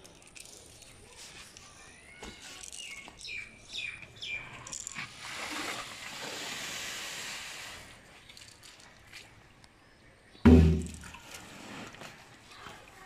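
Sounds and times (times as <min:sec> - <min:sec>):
rice and water pouring into sack: 0:04.9 - 0:08.8, 0:11.0 - 0:13.0.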